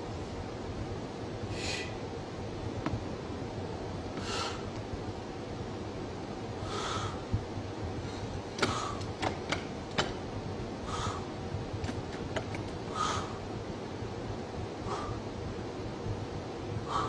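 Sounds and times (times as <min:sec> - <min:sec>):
background hiss: 0:00.0 - 0:09.2
slow breathing: 0:01.5 - 0:02.0, 0:04.2 - 0:04.8, 0:06.6 - 0:07.4, 0:08.0 - 0:09.2, 0:10.8 - 0:11.4, 0:14.8 - 0:15.3, 0:16.8 - 0:17.0.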